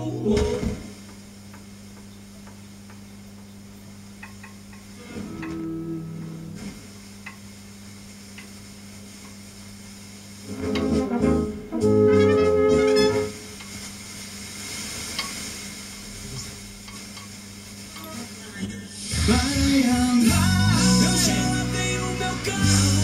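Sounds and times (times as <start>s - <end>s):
radio hum and hiss: 0.0s - 23.0s
music from radio station: 10.4s - 13.4s, 18.0s - 23.0s.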